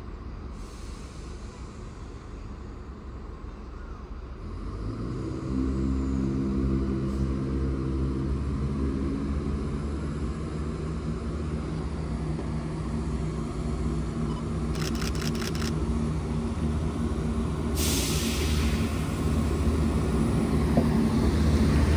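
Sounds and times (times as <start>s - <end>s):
diesel train engines droning: 0.0s - 21.9s.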